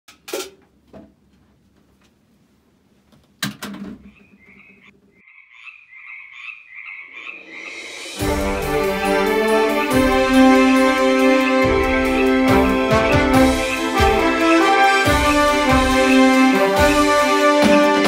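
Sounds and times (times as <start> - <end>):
frogs croaking: 4.1 - 8.2.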